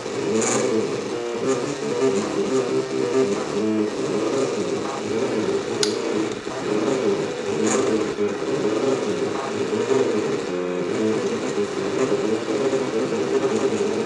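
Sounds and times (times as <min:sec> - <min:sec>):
stepper motors whining: 0:00.0 - 0:14.0
sharp clicks: 0:04.9 - 0:07.0.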